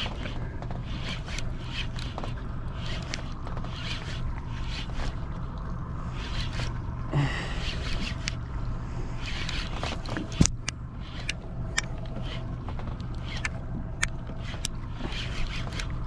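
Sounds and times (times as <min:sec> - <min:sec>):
fishing reel whirring: 0:00.0 - 0:08.5, 0:09.1 - 0:16.0.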